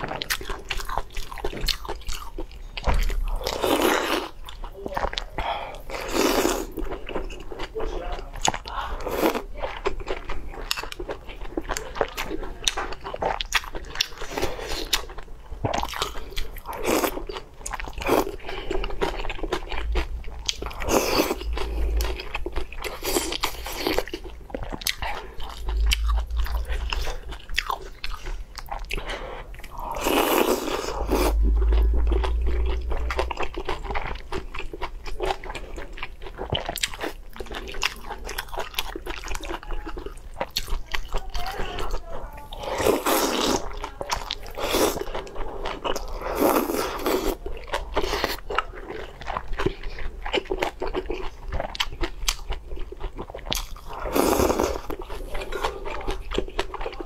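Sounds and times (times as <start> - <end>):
person chewing food: 0.0 - 57.0.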